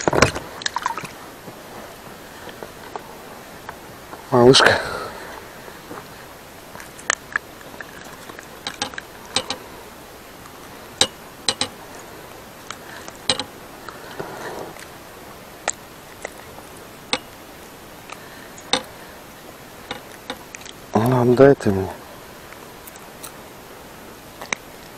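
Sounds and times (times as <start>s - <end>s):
metal lure clicking: 8.7s - 9.6s, 11.0s - 11.8s, 13.3s - 13.5s
soft rustle: 11.8s - 21.0s.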